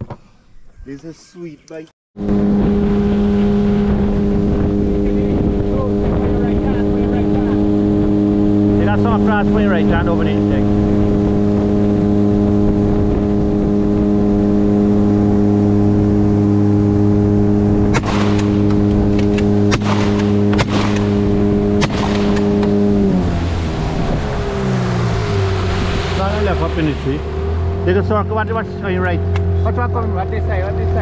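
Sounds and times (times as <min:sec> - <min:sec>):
outboard motor running: 0:02.2 - 0:31.0
sharp knocks: 0:17.9 - 0:22.8.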